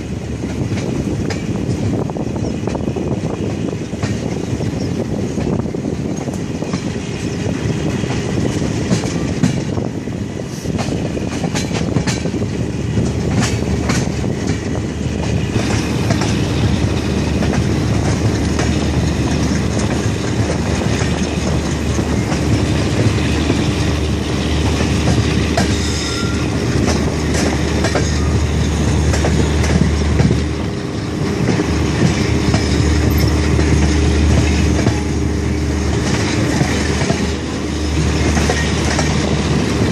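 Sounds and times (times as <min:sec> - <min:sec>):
clickety-clack over rail joints: 0:00.0 - 0:39.9
train wheels rumbling on rail: 0:00.0 - 0:39.9
wheel squeal: 0:25.7 - 0:26.6.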